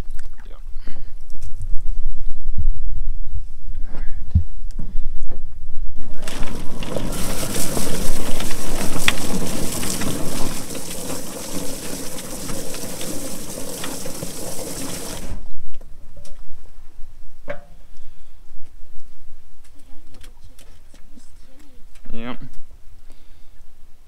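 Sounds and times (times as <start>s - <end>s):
chicken plucker drum spinning: 6.2s - 15.5s
water spraying: 6.2s - 15.5s.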